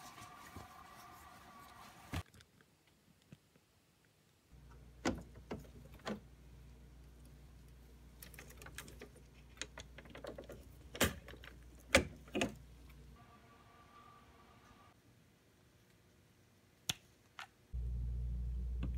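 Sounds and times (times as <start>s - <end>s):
low hum: 17.8s - 18.9s.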